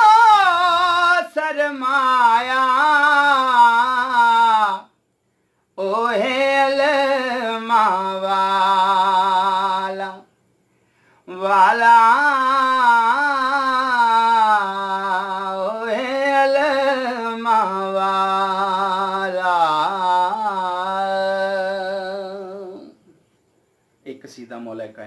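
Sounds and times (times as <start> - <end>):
man singing unaccompanied: 0.0 - 5.0, 5.7 - 10.4, 11.2 - 23.2.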